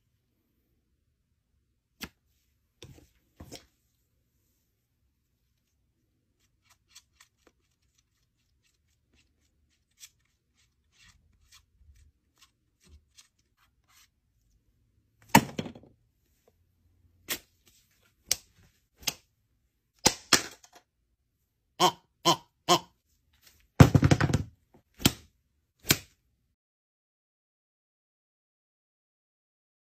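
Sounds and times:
palette knife scraping: 6.3s - 14.2s.

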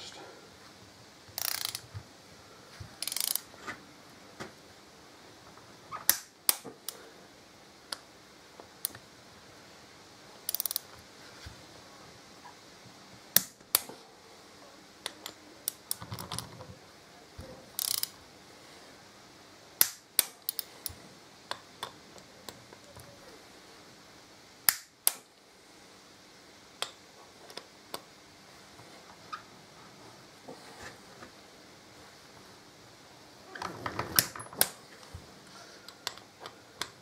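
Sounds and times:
torque wrench clicking: 1.4s - 1.8s, 3.0s - 3.4s, 10.5s - 10.8s, 17.8s - 18.2s, 19.8s - 21.0s
wrench ratchet rattling: 1.4s - 1.8s, 3.0s - 3.4s, 10.5s - 10.8s, 17.8s - 18.1s.

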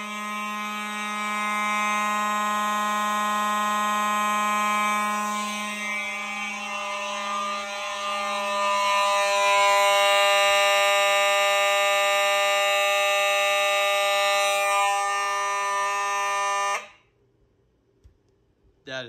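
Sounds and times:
fire alarm horns sounding: 0.0s - 17.2s.

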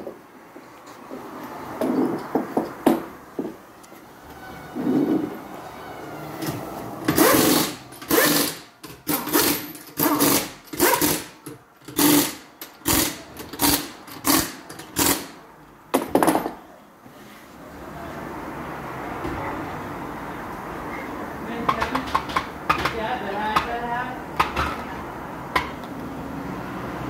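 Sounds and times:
pneumatic impact wrench bursts: 7.1s - 15.4s.

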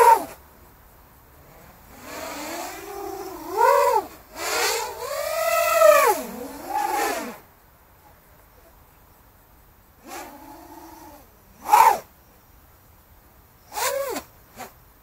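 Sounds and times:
quadcopter motors whining: 1.9s - 7.4s, 10.0s - 12.1s, 13.7s - 14.7s.

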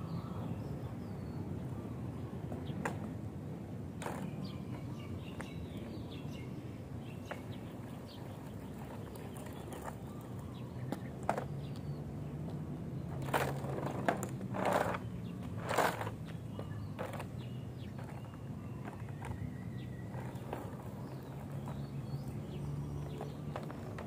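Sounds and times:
small wheels rolling on asphalt: 1.6s - 24.0s
birds chirping: 4.0s - 24.0s
board scraping: 13.2s - 16.2s.

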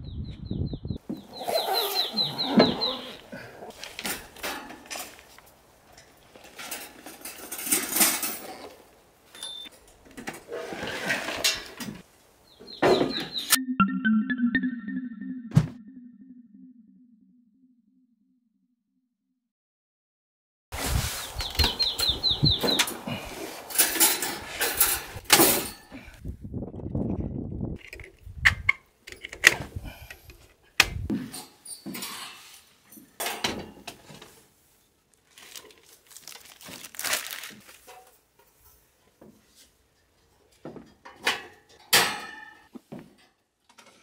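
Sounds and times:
bird chirping: 0.0s - 3.2s.

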